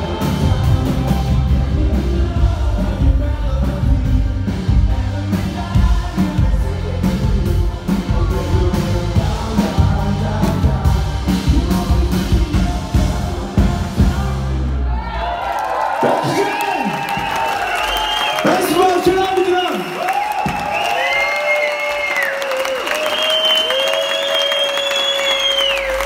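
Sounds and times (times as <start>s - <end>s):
person singing: 0.0s - 14.9s
live pop-rock band: 0.0s - 15.4s.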